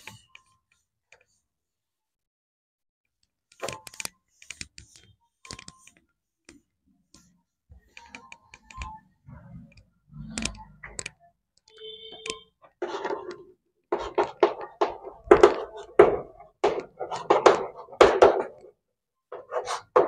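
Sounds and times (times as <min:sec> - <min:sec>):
sharp clicks: 0:09.7 - 0:12.5.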